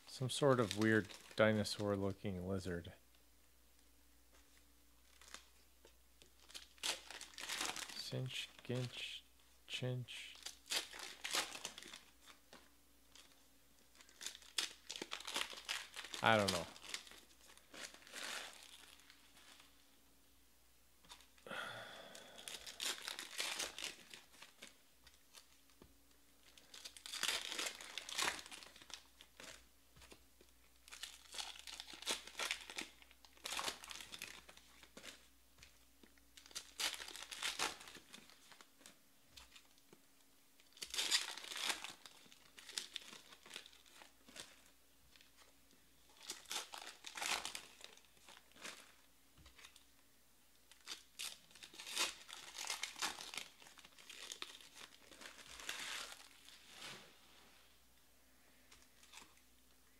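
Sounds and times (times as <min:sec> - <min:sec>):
card pack wrappers crinkling: 0:00.2 - 0:01.8, 0:05.0 - 0:05.6, 0:06.2 - 0:09.2, 0:10.1 - 0:19.7, 0:22.1 - 0:25.8, 0:26.4 - 0:39.9, 0:40.6 - 0:49.9, 0:50.6 - 0:56.6.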